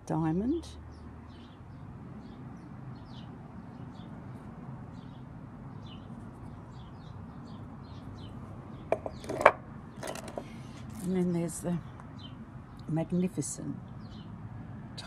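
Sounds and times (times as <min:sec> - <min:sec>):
small birds chirping: 0:00.1 - 0:14.7
knocks on table: 0:08.9 - 0:09.6.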